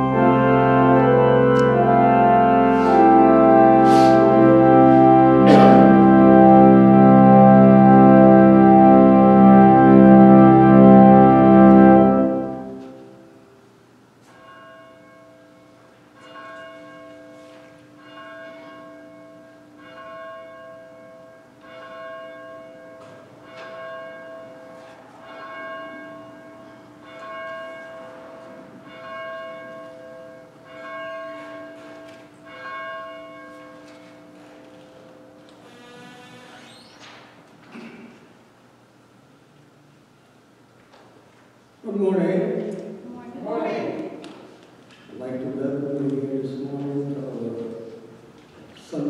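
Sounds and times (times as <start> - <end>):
bell tolling: 0.0 - 11.5
organ chord: 0.0 - 13.4.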